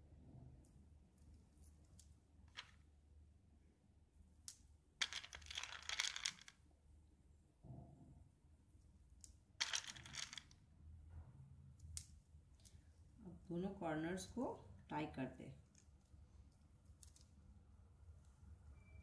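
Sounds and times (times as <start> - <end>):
plastic beads clicking: 4.4 - 6.6, 9.2 - 10.6, 15.7 - 17.3.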